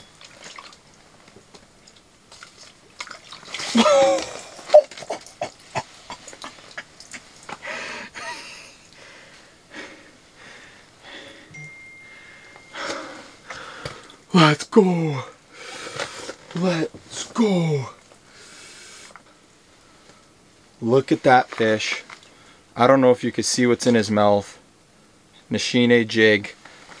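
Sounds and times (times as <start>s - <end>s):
water splashing: 0.0s - 7.5s
person grunting: 3.8s - 4.9s.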